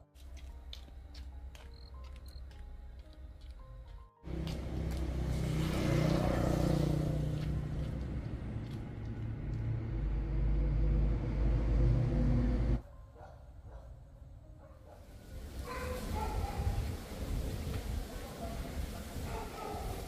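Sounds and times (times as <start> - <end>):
vehicle engine rumbling: 4.3 - 12.8.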